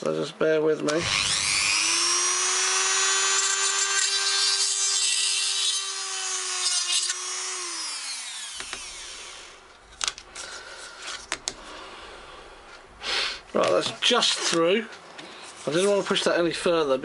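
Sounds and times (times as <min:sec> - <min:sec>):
rotary tool drilling: 0:01.0 - 0:09.6.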